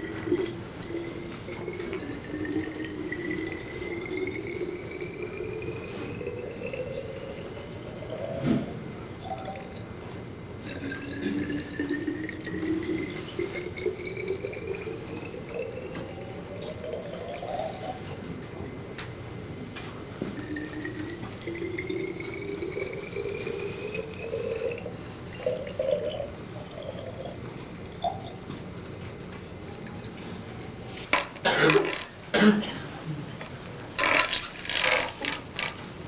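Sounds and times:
water trickling: 0.0 - 8.4, 10.6 - 18.0, 20.3 - 28.4
water pouring into glass bottle: 0.0 - 9.9, 10.6 - 18.1, 20.2 - 28.4, 34.0 - 35.8.

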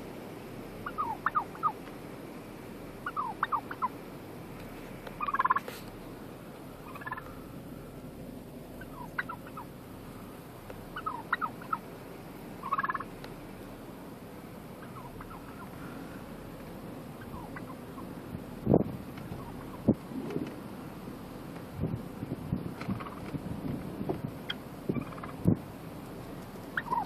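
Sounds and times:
turkeys gobbling: 0.8 - 1.9, 3.0 - 8.0, 8.7 - 13.7, 14.6 - 18.4, 19.1 - 20.6, 22.8 - 23.4, 24.4 - 25.6, 26.2 - 27.0.

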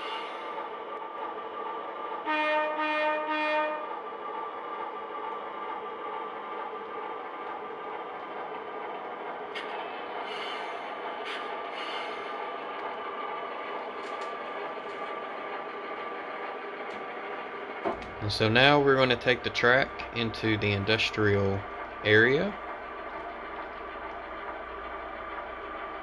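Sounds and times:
model train horn toots: 2.2 - 3.9.

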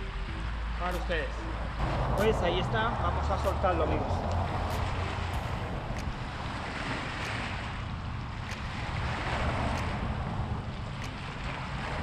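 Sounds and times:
wind buffeting microphone: 1.6 - 12.0
waves washing against rocks: 3.4 - 12.0.

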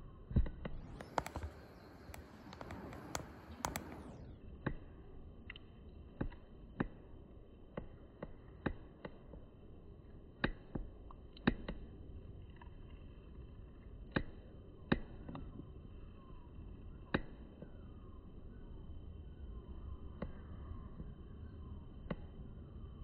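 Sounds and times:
sharp clicks and taps: 0.9 - 4.1.

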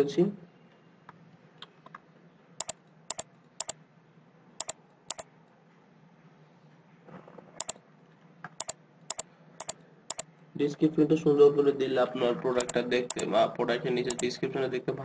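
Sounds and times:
computer keys and mouse clicking: 2.6 - 3.8, 4.6 - 5.3, 7.6 - 7.8, 8.5 - 10.3, 12.6 - 13.3, 14.1 - 14.3.

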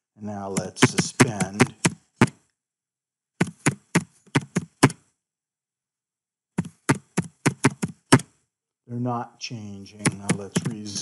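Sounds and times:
keyboard typing: 0.4 - 2.4, 3.4 - 5.0, 6.6 - 8.3, 10.0 - 11.0.

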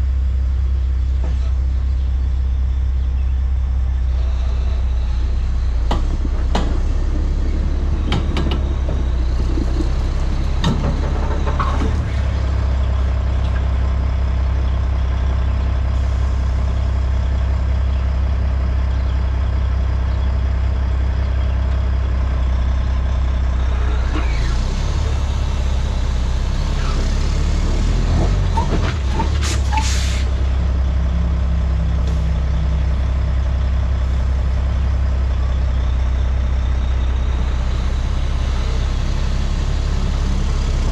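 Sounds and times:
diesel truck engine running: 0.0 - 40.9
air brake hisses: 29.4 - 30.3.

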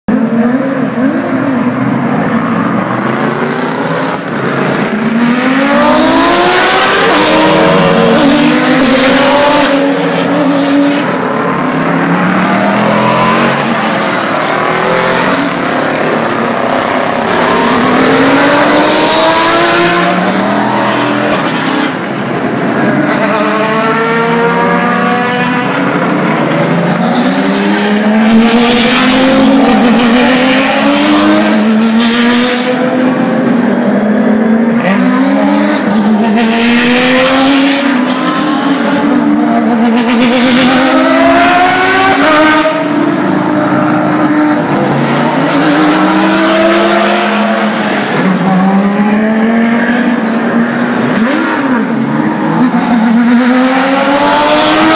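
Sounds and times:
race car engines accelerating: 0.1 - 54.9.

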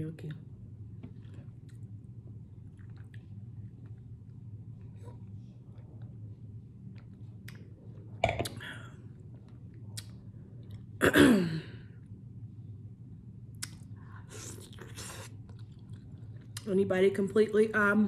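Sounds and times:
steady low hum: 0.0 - 18.0
wet chewing and mouth clicks: 2.6 - 6.1, 13.5 - 16.7.

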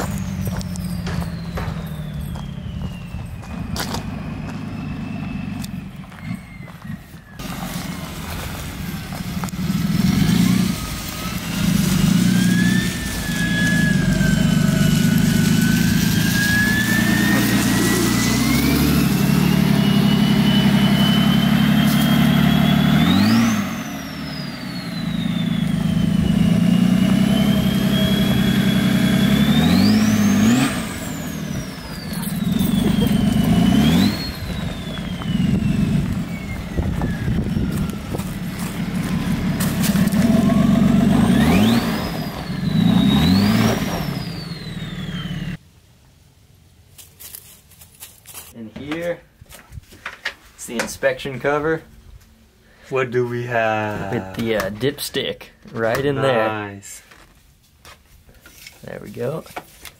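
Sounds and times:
turbo whistle: 0.0 - 7.4, 12.4 - 38.2
diesel van engine driving: 0.0 - 45.6.

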